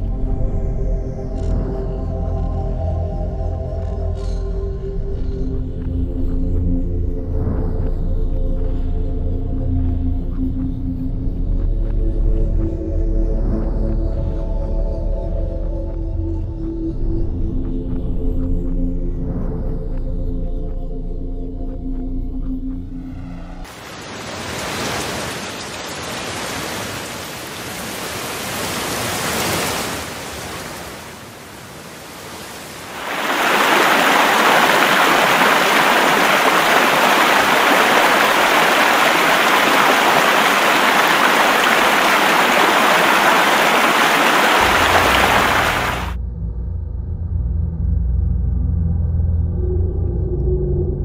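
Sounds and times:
water pouring down spillway: 23.6s - 46.2s
heavy rain hissing: 23.7s - 46.2s.

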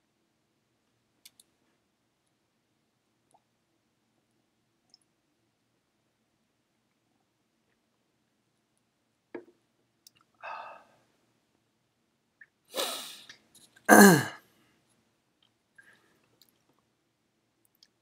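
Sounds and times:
man's breathy burst: 12.7s - 13.3s, 13.9s - 14.4s
man's voiced exhale: 12.8s - 13.2s.

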